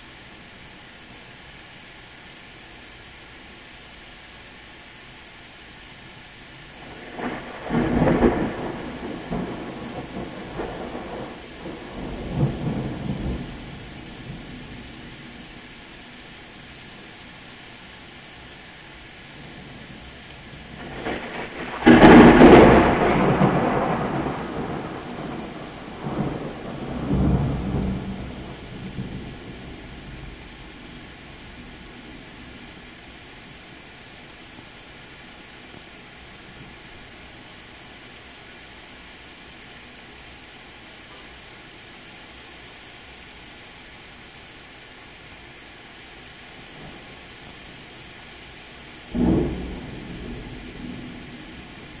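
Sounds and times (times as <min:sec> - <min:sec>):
steady rain: 0:00.0 - 0:52.0
thunder rolling: 0:06.9 - 0:14.4, 0:20.7 - 0:30.4, 0:49.1 - 0:52.0.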